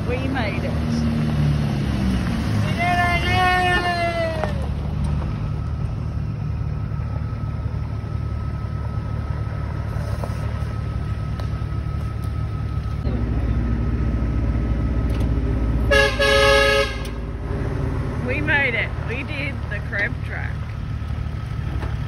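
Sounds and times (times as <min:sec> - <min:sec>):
vehicle engines rumbling on gravel: 0:00.0 - 0:22.0
car horn toot: 0:15.8 - 0:17.2.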